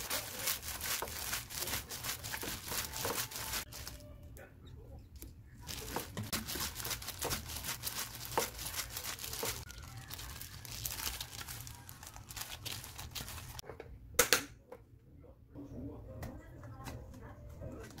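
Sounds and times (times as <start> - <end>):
plastic gloves crinkling: 0.0 - 4.0, 5.6 - 13.6.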